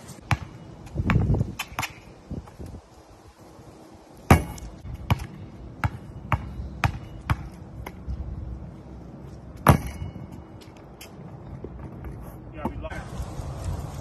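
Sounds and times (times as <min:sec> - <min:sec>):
basketball bouncing on asphalt: 0:00.2 - 0:02.6, 0:04.3 - 0:12.8.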